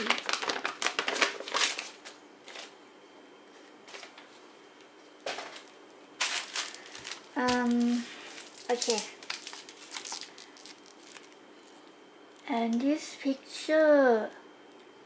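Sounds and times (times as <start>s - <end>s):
paper and plastic rustling: 0.0s - 2.8s, 3.8s - 4.4s, 5.3s - 11.9s.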